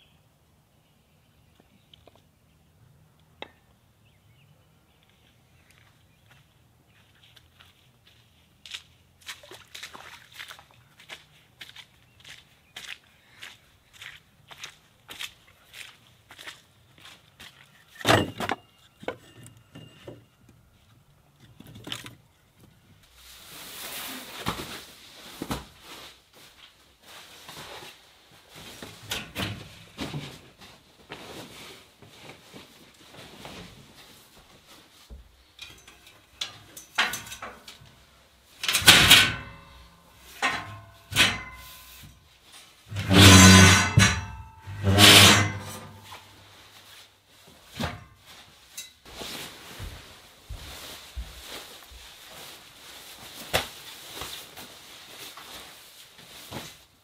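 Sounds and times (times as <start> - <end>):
firewood set onto woodpile: 17.9 - 20.6, 21.3 - 22.8, 35.6 - 37.8, 38.6 - 42.2, 42.9 - 46.2.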